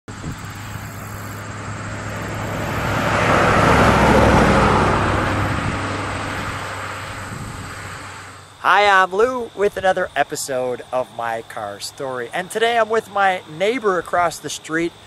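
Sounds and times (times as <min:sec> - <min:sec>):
tyre and road noise: 0:00.1 - 0:15.0
car engine hum driving past: 0:00.2 - 0:08.6.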